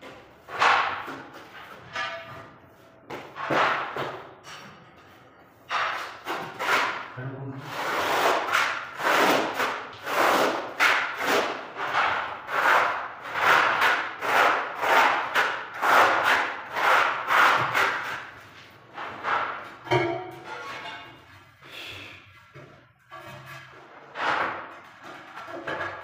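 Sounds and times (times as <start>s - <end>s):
trowel scraping tile adhesive: 5.7s - 18.4s.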